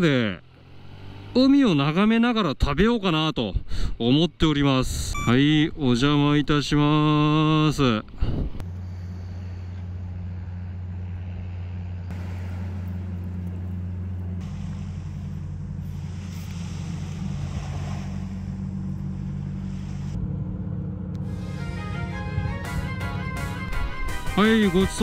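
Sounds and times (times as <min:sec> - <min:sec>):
wind: 0:00.0 - 0:23.0
engine idling: 0:08.6 - 0:25.0.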